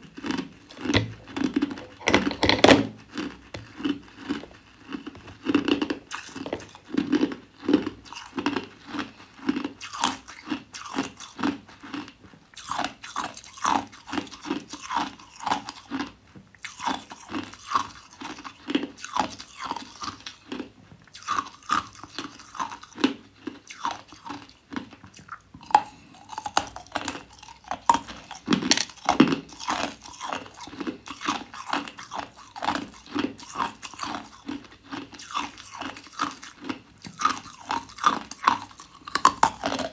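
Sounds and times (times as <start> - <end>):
person crunching ice: 0.2 - 11.3, 25.6 - 39.9.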